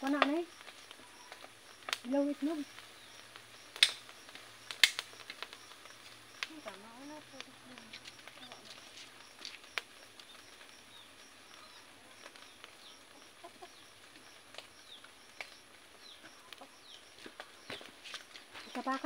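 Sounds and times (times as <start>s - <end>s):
sharp clicks: 3.7s - 5.6s
faint bird chirps: 10.2s - 17.9s.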